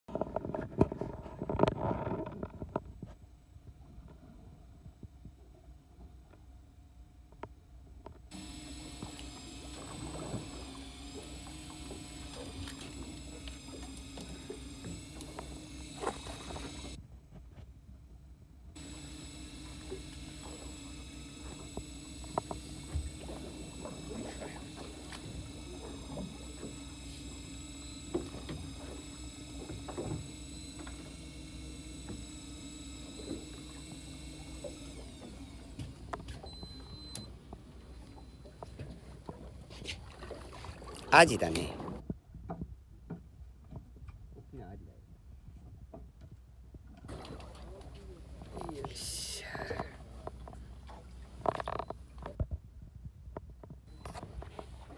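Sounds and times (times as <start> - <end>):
boat engine humming: 0.2 - 17.2, 17.9 - 42.1, 47.1 - 52.4, 53.9 - 54.9
small clicks: 7.4 - 17.0, 18.8 - 38.8
electric fishing reel whine: 8.0 - 17.0, 18.8 - 42.0, 47.1 - 52.4, 53.9 - 54.9
water splashing: 8.3 - 17.0.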